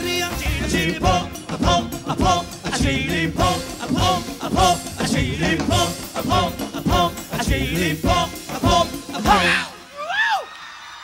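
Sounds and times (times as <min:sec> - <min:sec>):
live upbeat pop band music: 0:00.0 - 0:10.4.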